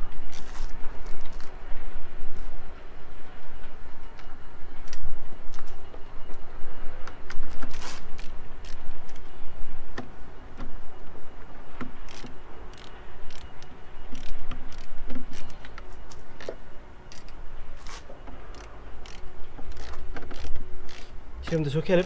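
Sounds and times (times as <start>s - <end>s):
steady low rumble: 0.0s - 22.0s
screwdriver clicking and scraping: 7.5s - 9.2s, 12.1s - 15.9s, 17.1s - 21.1s.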